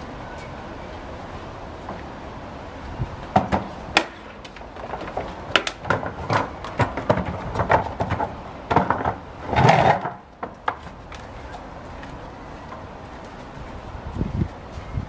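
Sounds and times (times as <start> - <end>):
footsteps on concrete: 10.4 - 14.9.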